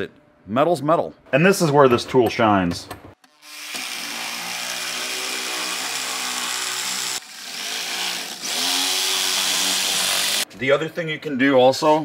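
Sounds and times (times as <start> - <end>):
power shear cutting sheet steel: 3.3 - 10.5.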